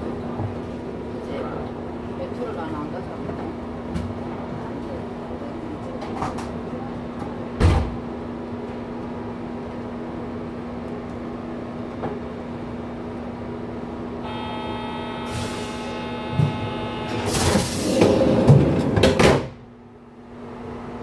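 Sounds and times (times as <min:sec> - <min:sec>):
train carriage hum: 0:00.0 - 0:21.0
train door shutting thump: 0:07.6 - 0:08.0, 0:15.3 - 0:19.6
door warning buzzer tone: 0:14.2 - 0:17.7.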